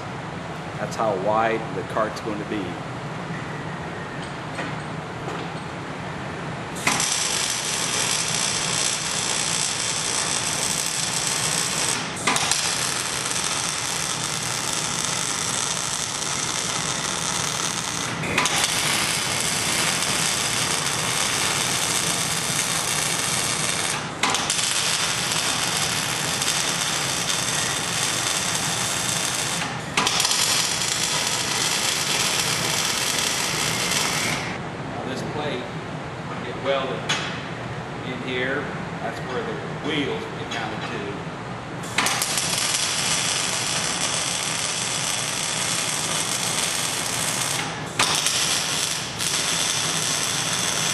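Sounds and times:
welder arc buzzing: 6.8s - 34.6s, 41.8s - 50.9s.

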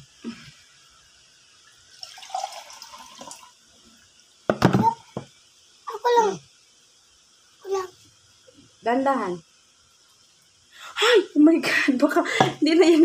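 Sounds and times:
water pouring into batter: 1.6s - 3.6s.

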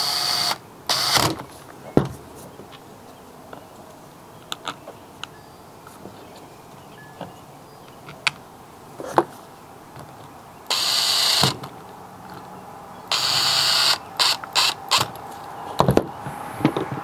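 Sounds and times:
power driver driving screws: 0.0s - 1.4s, 10.7s - 11.7s, 13.1s - 15.2s.

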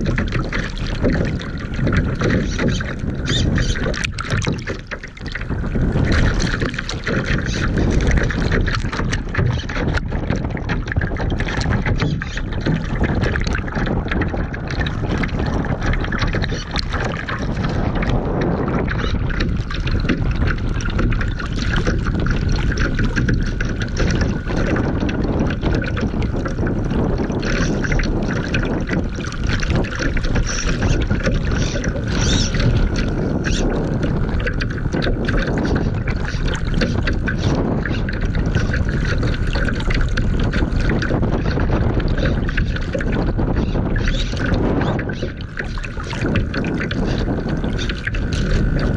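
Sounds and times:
water splashing against hull: 0.0s - 48.9s
wind buffeting microphone: 0.0s - 48.9s.

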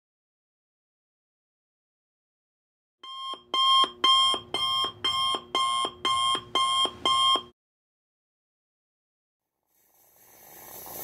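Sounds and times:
digital alarm clock beeping: 3.0s - 7.5s.

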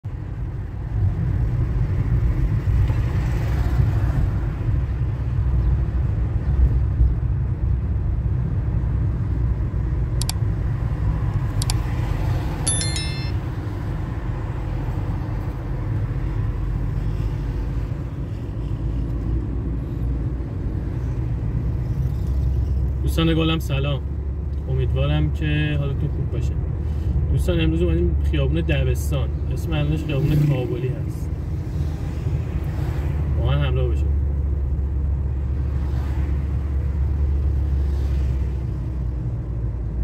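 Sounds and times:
car engine and tyres rumbling: 0.0s - 40.0s
short clicks: 10.2s - 10.4s
brief chime: 12.7s - 13.4s.

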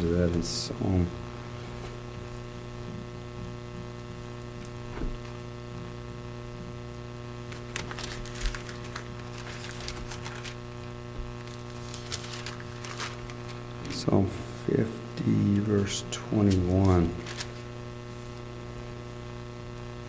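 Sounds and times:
electrical mains hum: 0.0s - 20.0s
paper pages rustling: 7.5s - 14.1s, 16.4s - 18.4s.

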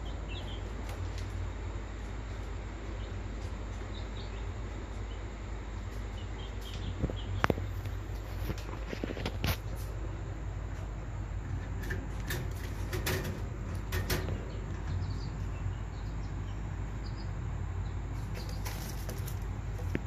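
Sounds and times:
steady low hum: 0.0s - 20.0s
pigeons moving about: 18.2s - 20.0s.

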